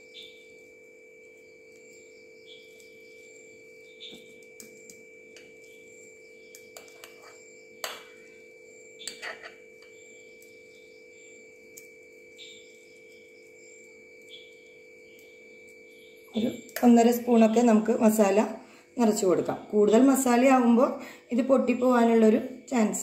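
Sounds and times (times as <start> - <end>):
steady hum: 0.0 - 23.0
metal spoon scraping glass bowl: 6.8 - 7.5, 9.0 - 10.0.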